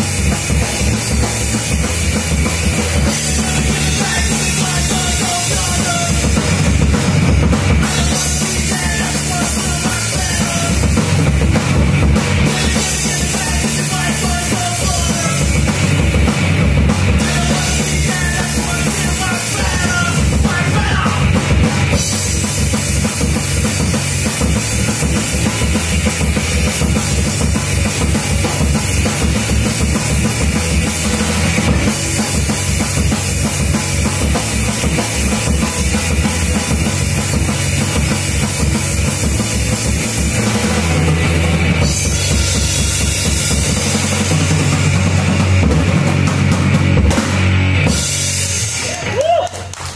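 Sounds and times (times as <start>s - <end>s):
electric guitars: 0.0s - 49.9s
rock band playing: 0.0s - 49.9s.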